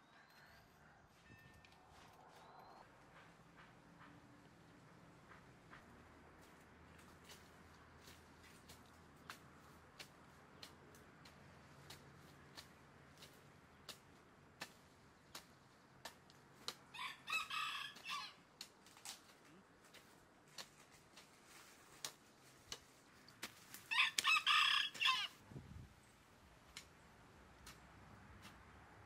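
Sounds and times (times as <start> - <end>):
rooster crowing: 16.9 - 18.4, 23.9 - 25.4.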